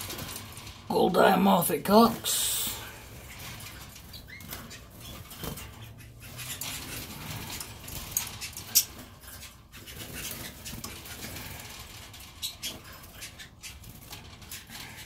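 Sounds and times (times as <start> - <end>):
birds scratching in wire cages: 0.0 - 15.0.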